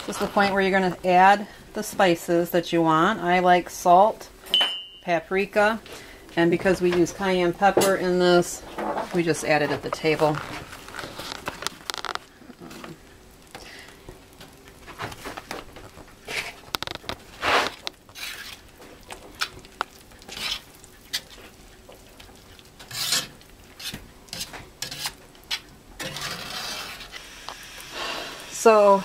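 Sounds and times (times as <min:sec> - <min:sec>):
metal utensil stirring thick gravy: 0:16.2 - 0:27.3.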